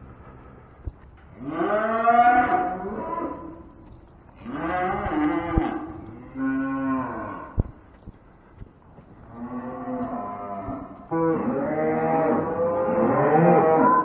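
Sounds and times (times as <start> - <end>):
cattle mooing: 1.4 - 3.6, 4.4 - 7.7, 9.3 - 14.0.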